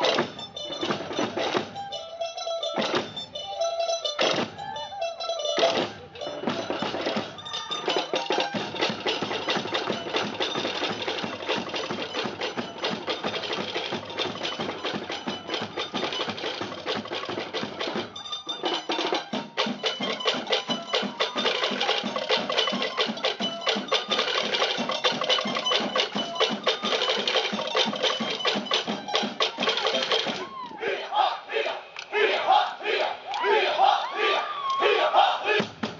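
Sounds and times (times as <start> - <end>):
percussion ensemble playing: 0.0 - 30.7, 32.8 - 35.9.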